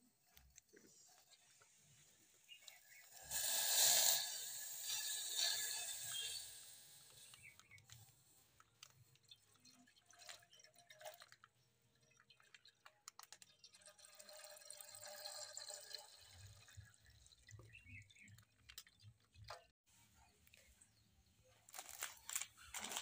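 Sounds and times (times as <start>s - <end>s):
milk pouring into a metal pot: 0.8s - 7.4s, 8.6s - 19.5s.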